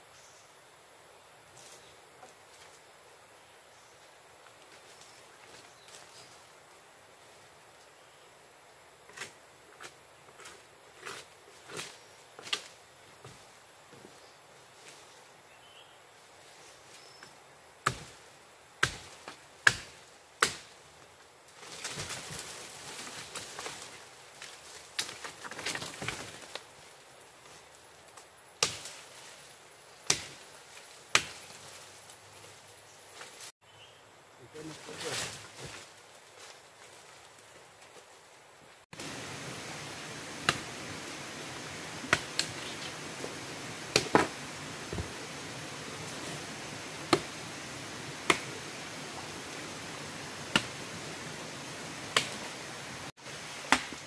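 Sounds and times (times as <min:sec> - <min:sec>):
rustle of leaves and branches: 0:00.0 - 0:54.0
steady hiss: 0:00.0 - 0:54.0
machete chopping into wood: 0:18.8 - 0:20.7, 0:28.6 - 0:29.0, 0:30.1 - 0:30.4, 0:31.1 - 0:31.5, 0:43.9 - 0:45.1, 0:47.1 - 0:47.3, 0:48.2 - 0:48.5, 0:50.5 - 0:50.8, 0:52.1 - 0:52.5, 0:53.7 - 0:54.0.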